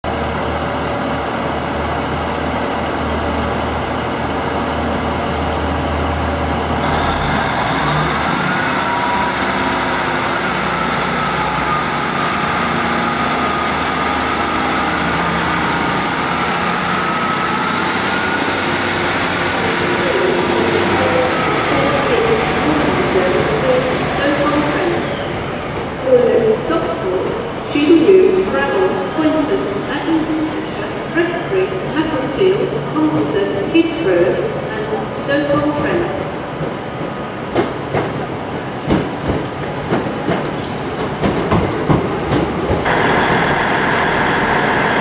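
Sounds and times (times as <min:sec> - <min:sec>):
train diesel engines idling hum: 0:00.1 - 0:36.6, 0:42.2 - 0:45.0
train engine revving whine: 0:06.3 - 0:25.8, 0:42.8 - 0:45.0.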